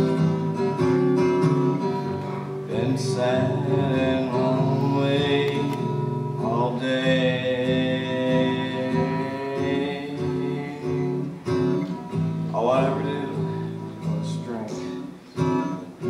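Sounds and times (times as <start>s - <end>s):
acoustic guitar: 0.0s - 16.0s
man singing: 2.6s - 11.9s, 12.5s - 15.1s.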